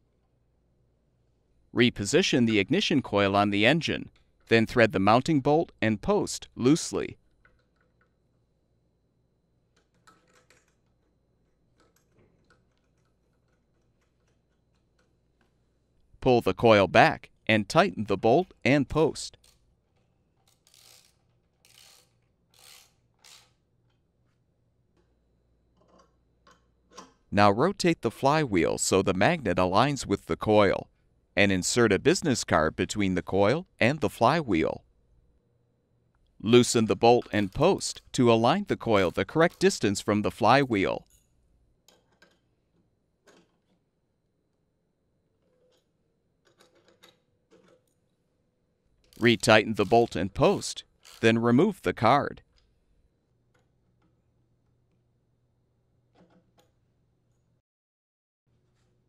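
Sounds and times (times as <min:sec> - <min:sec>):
socket wrench ratcheting: 0:20.4 - 0:23.6, 0:49.8 - 0:51.2.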